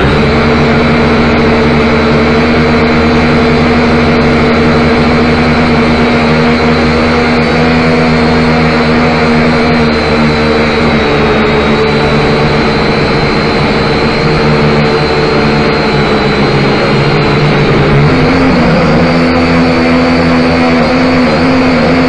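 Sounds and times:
drone motors humming: 0:00.0 - 0:22.0
propeller whine: 0:00.0 - 0:22.0.

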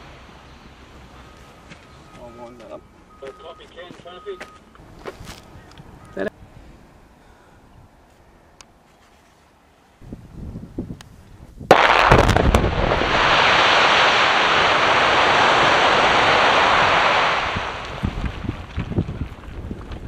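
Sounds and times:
rush of blast noise: 0:11.7 - 0:18.4
loud blast crack: 0:11.7 - 0:18.5.

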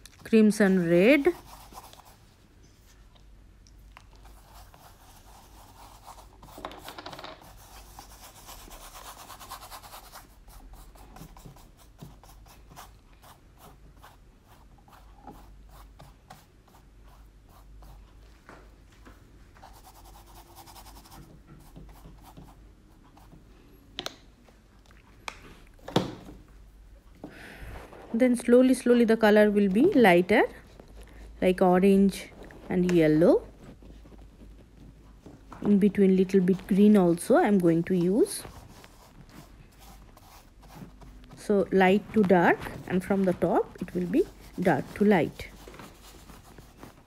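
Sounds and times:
paintbrush scrubbing canvas: 0:00.6 - 0:03.0, 0:04.2 - 0:06.6, 0:07.4 - 0:18.2, 0:19.6 - 0:23.4, 0:35.9 - 0:47.0.

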